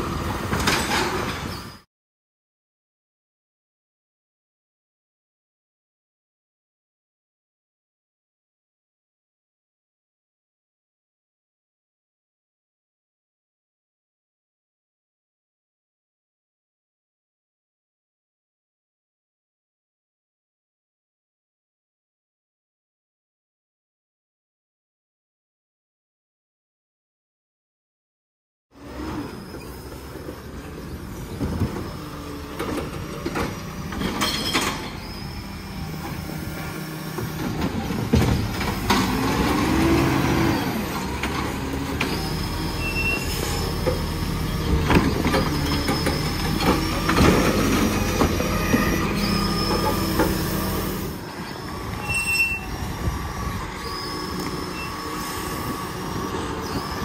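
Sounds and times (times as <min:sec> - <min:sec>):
hydraulic arm working: 0:28.8 - 0:57.0
metal squealing: 0:28.9 - 0:36.4, 0:42.0 - 0:57.0.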